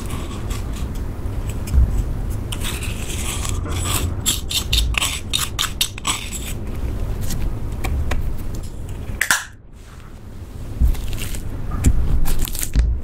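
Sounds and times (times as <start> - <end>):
plastic spatula scraping: 0.0 - 8.5.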